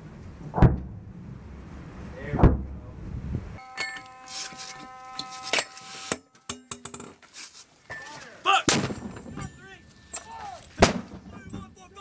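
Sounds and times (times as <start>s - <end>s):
mortar firing: 10.8s - 11.4s.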